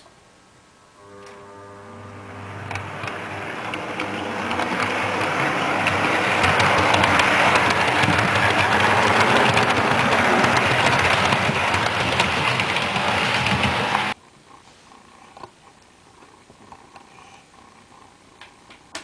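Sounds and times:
model train passing: 1.0 - 14.2.

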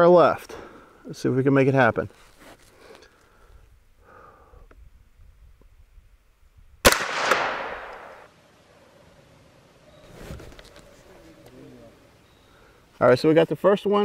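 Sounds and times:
rifle shot with echo: 6.8 - 8.3.

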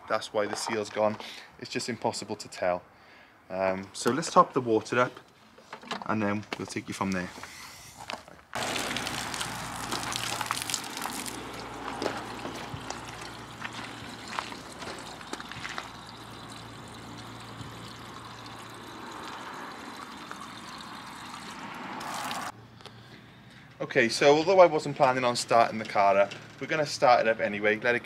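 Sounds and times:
water rushing from hose nozzle: 8.6 - 22.5.

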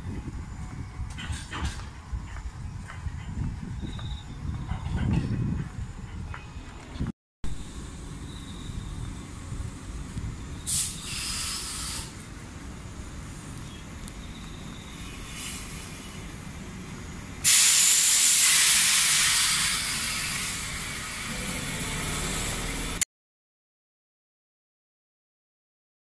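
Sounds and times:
compressed air hissing from train: 7.6 - 23.0.

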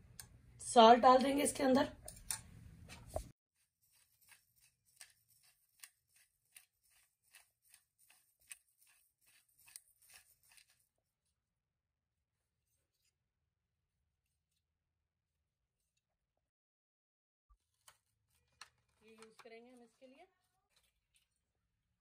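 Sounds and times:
pepper grinder crunching: 3.8 - 10.8.

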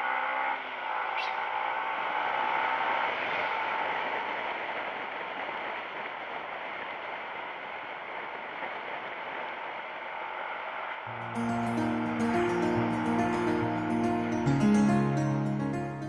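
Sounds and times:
wind and road noise: 0.0 - 11.1
music: 11.1 - 16.0.

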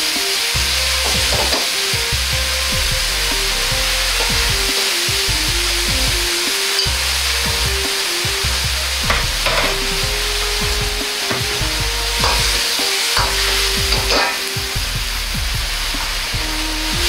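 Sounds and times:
stir-fry sizzling in a wok: 0.0 - 17.0
metal ladle scraping a wok: 9.1 - 14.6.

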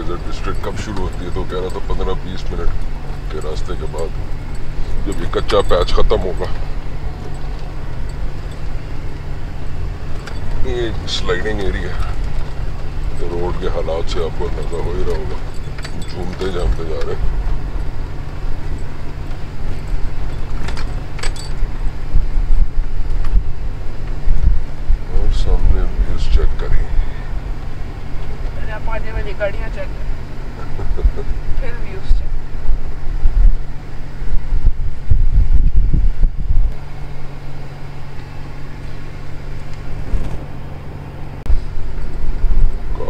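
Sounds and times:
tyres rumbling on rough road: 0.0 - 43.0
loose things rattling: 9.8 - 22.0.

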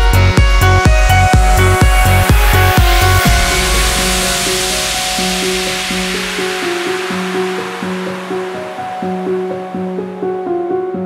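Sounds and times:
heavy kick drum: 0.0 - 8.7
held synth notes: 0.0 - 10.2
rushing noise sweep: 0.2 - 10.8.

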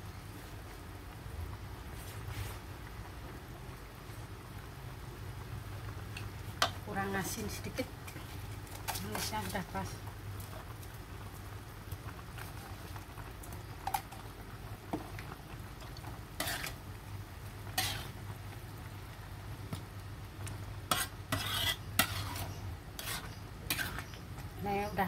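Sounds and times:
metal spatula scraping a wok: 16.4 - 16.8, 17.7 - 18.2, 20.9 - 24.2.

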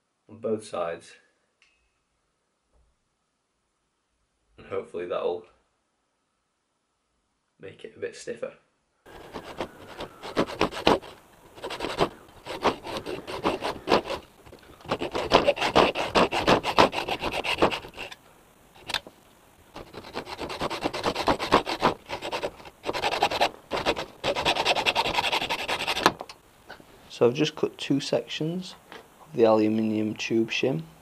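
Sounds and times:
hacksaw cutting metal tube: 9.1 - 18.2, 19.8 - 26.2.

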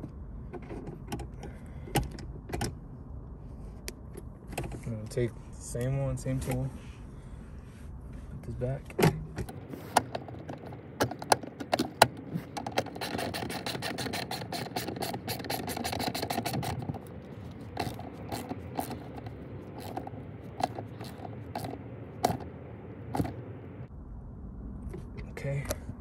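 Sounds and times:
ratchet wrench clicking: 11.1 - 22.5.

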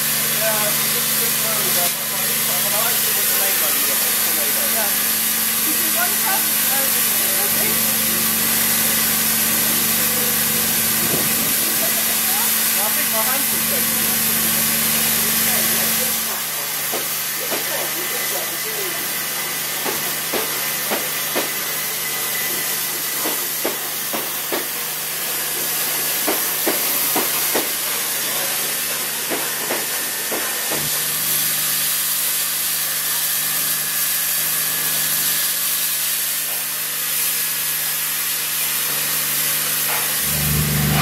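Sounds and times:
steam hissing: 0.0 - 41.0
low hum: 40.2 - 41.0.

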